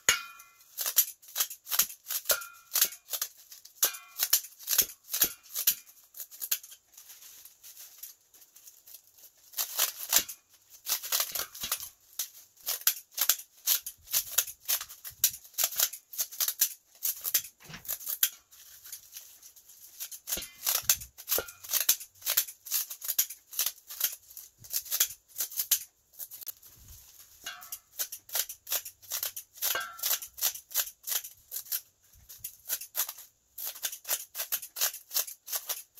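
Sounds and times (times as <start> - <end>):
scissors snipping dried seaweed: 12.6 - 14.8, 27.7 - 31.8, 32.4 - 35.9.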